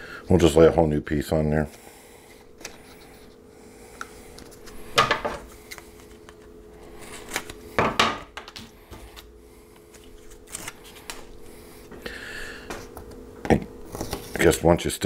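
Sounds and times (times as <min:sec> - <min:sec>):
faint steady hum: 0:00.0 - 0:15.0
tape rustling and scraping: 0:04.3 - 0:07.6, 0:08.5 - 0:11.4.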